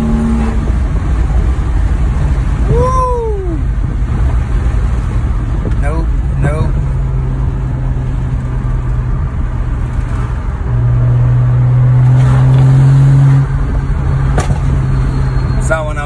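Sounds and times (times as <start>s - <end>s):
car engine droning from cabin: 0.0s - 16.0s
exhaust pop: 14.3s - 14.8s.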